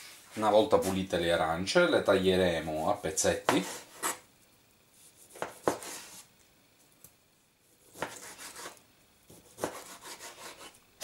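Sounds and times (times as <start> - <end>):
knife cutting on cutting board: 3.5 - 4.2, 5.3 - 6.2, 7.8 - 10.8.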